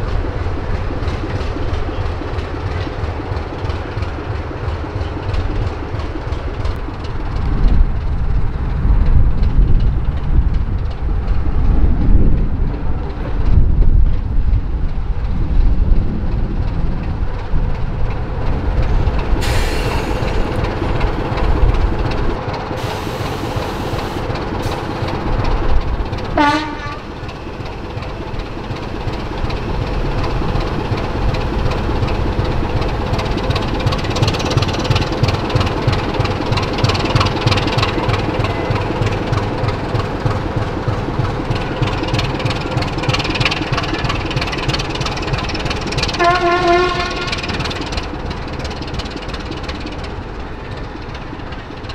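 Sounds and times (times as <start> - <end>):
diesel locomotive engine throbbing: 0.0 - 51.9
air hisses: 19.4 - 20.4, 22.8 - 25.1.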